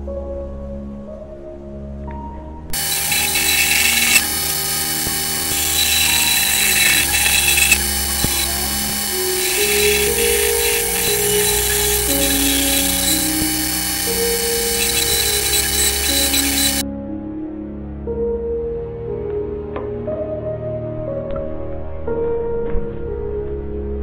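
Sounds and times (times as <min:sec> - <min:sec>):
background music with held notes: 0:00.0 - 0:02.8, 0:15.8 - 0:24.0
bandsaw cutting wood: 0:02.8 - 0:16.8.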